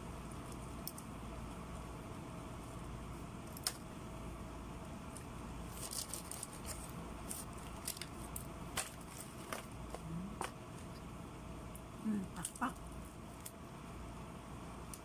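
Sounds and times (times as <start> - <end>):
steady low hum: 0.0 - 15.0
aluminium foil crinkling: 5.1 - 10.0.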